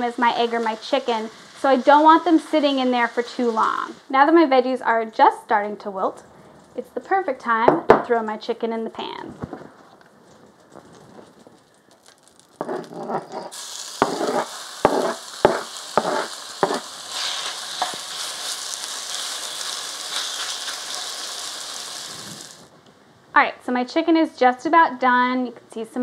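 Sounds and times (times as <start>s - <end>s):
chicken sizzling in a pan: 0.0s - 4.5s, 13.5s - 22.7s
rustling: 9.1s - 22.7s
sharp knocks in a pan: 14.0s - 16.8s.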